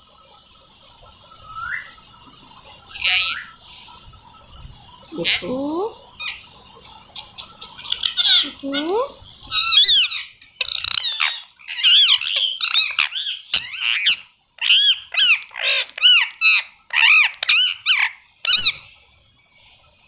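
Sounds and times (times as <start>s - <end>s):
parakeet high-pitched calls: 2.8s - 3.8s, 5.0s - 19.0s.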